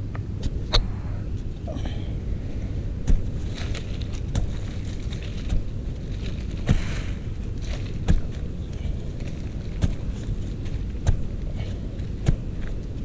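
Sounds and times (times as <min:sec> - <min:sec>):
steady low rumble: 0:00.0 - 0:13.0
digging tool striking earth: 0:03.0 - 0:13.0.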